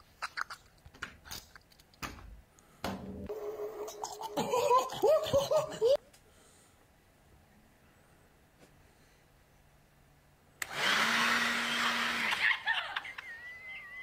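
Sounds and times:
man laughing and shrieking: 4.0s - 6.0s.

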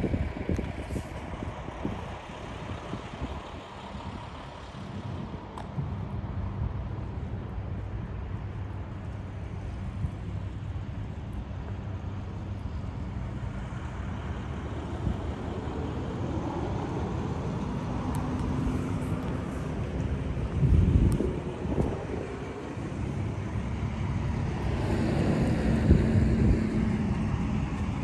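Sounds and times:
diesel engine idling: 0.2s - 16.3s.

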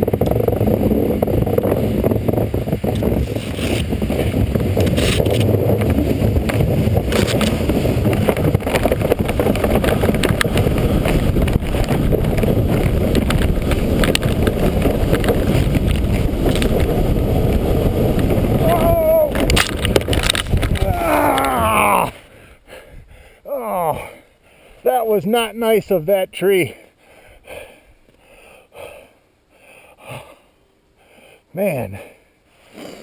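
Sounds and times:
kayak hull scraping on snow: 0.0s - 20.9s
wind buffeting microphone: 0.0s - 24.0s.

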